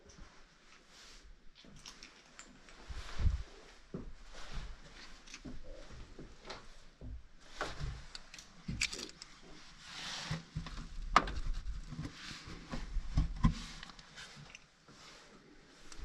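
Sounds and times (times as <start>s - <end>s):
knocks and scrapes on wooden beams: 9.4s - 14.5s.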